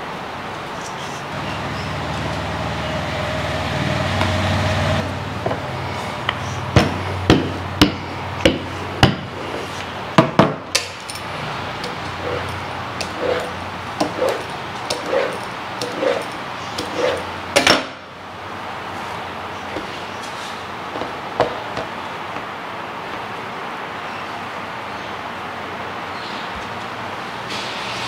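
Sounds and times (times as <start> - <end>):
steady low hum: 10.9 - 23.0.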